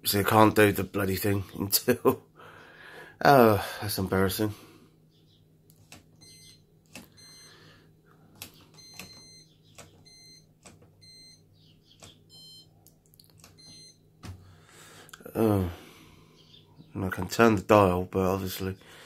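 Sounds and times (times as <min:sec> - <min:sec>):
washing machine beeping with clicks: 0:06.0 - 0:07.6, 0:08.4 - 0:14.4.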